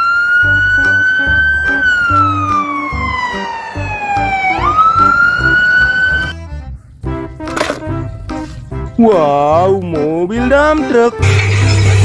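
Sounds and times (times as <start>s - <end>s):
fire engine siren wailing: 0.0s - 6.4s.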